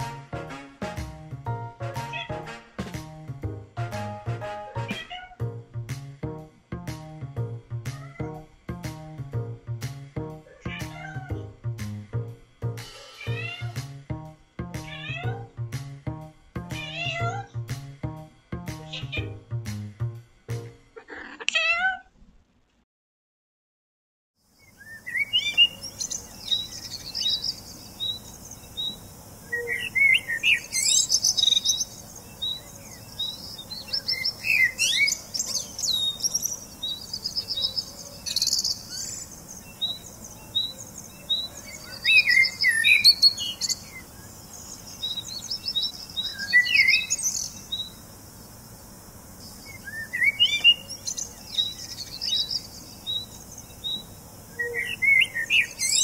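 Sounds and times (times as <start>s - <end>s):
songbirds chirping: 24.4s - 56.0s
bird twittering song: 24.6s - 48.0s, 49.4s - 56.0s.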